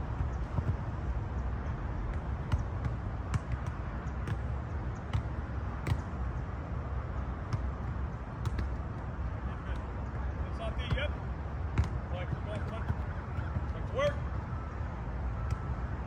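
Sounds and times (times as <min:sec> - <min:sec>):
balls being kicked: 0:00.0 - 0:01.1, 0:02.0 - 0:06.2, 0:07.4 - 0:09.9, 0:10.5 - 0:14.3.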